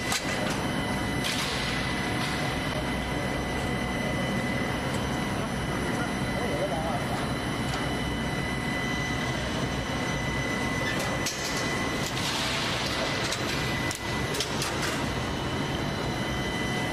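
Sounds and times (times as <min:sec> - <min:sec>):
machine drone with whining tones: 0:00.0 - 0:16.9.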